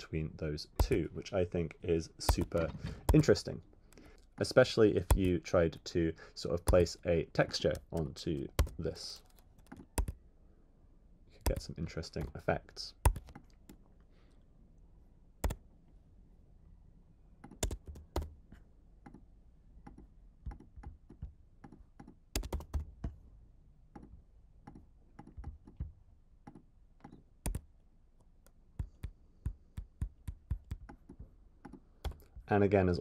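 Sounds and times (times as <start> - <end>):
computer keyboard typing: 0.8 - 1.0, 2.2 - 3.4, 5.0 - 5.4, 6.6 - 10.2, 11.4 - 12.4, 13.0 - 13.8, 17.4 - 18.3, 21.6 - 22.9, 26.5 - 27.7.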